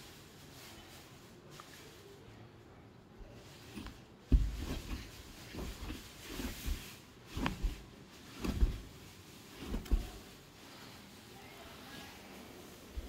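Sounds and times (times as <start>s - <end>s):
paws batting on a mattress: 4.3s - 10.3s.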